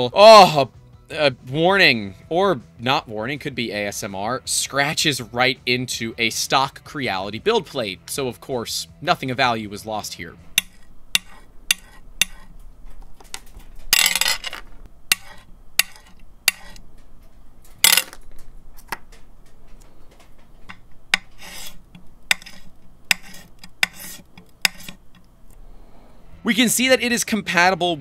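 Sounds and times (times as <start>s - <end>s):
nozzle scraping across glass: 21.2s - 25.2s.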